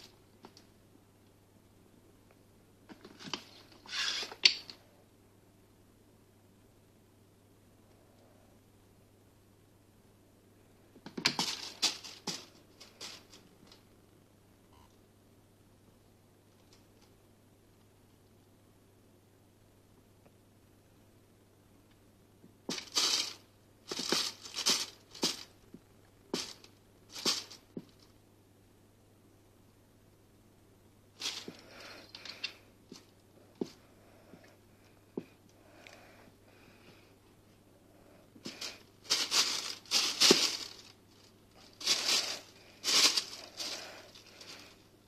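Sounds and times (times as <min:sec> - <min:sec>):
plastic sheet crinkling: 0:11.1 - 0:13.4, 0:22.7 - 0:25.5, 0:26.4 - 0:27.6, 0:31.2 - 0:33.1, 0:38.4 - 0:44.8.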